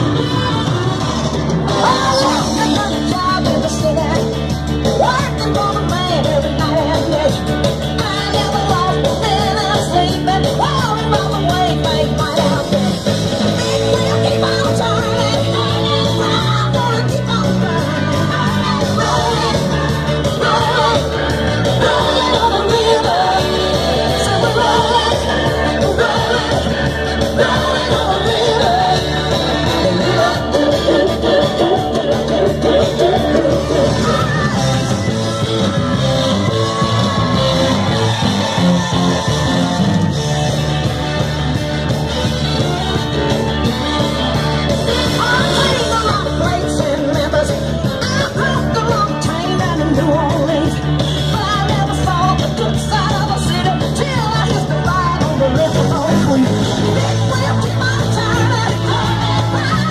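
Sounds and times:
rock and roll music over a pa: 0.0s - 59.9s
woman singing into a microphone: 1.8s - 34.8s, 45.0s - 59.9s.

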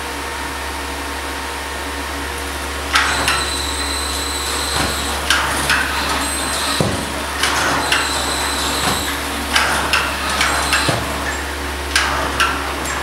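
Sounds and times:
steady low hum: 0.0s - 13.0s
robot motor whines and clicks: 2.9s - 13.0s.

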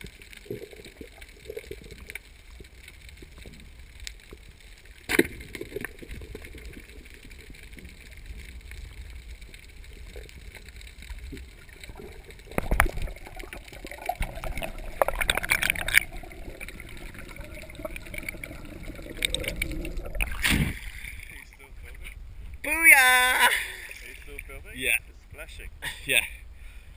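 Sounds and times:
water bubbling and rushing: 0.0s - 22.0s.

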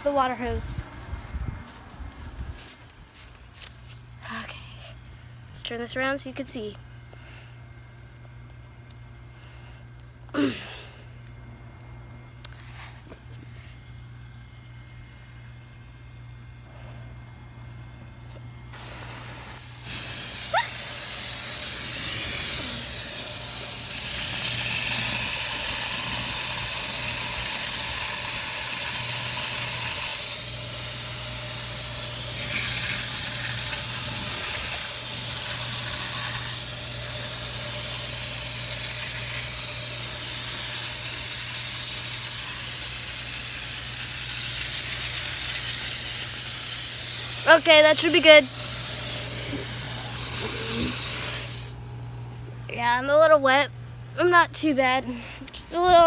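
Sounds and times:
garden hose spraying water: 18.7s - 51.8s.

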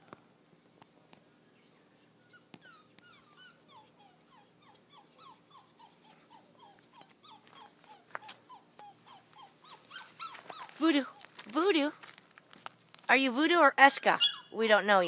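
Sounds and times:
puppy whimpering: 1.6s - 11.4s, 14.0s - 14.7s.

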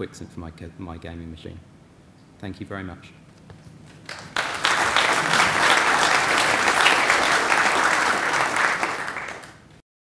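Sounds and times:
audience applauding: 4.1s - 9.7s.

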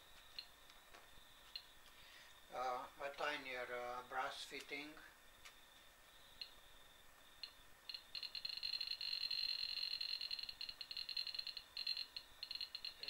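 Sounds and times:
faint steady high tone: 6.0s - 13.0s
stuttering high-pitched detector tone: 7.4s - 13.0s.

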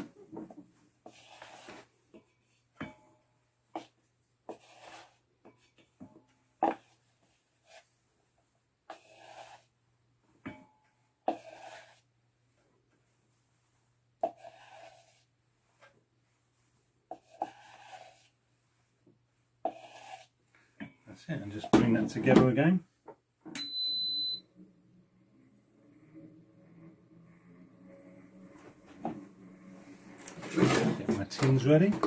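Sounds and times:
scraping in mixing bowl: 17.1s - 18.3s, 24.3s - 32.0s
faint low hum: 23.6s - 32.0s.

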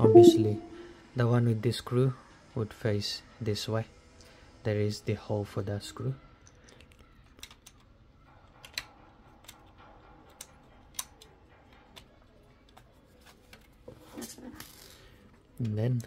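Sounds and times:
plastic and metal parts clicking: 7.3s - 7.9s, 8.6s - 9.6s.

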